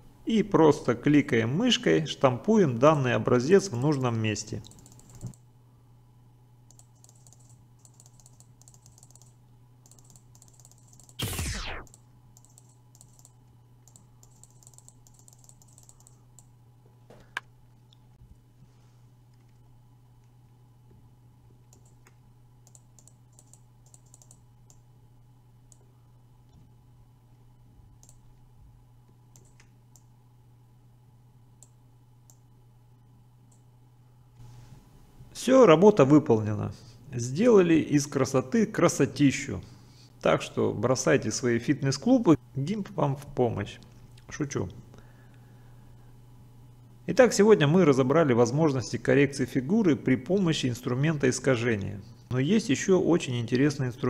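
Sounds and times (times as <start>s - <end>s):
steady low hum: 0.0s - 54.0s
computer mouse clicks: 4.6s - 5.4s, 6.7s - 11.2s, 11.8s - 16.5s, 21.7s - 24.8s, 28.0s - 28.3s, 29.3s - 30.1s
mouse and keyboard clicks: 6.7s - 11.2s
sharp pop: 11.2s - 11.9s.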